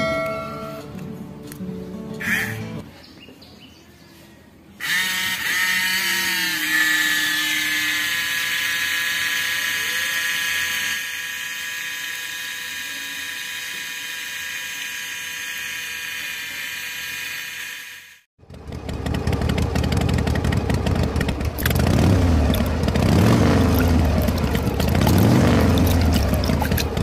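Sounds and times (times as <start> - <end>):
small motor high whine: 4.8 - 18.3.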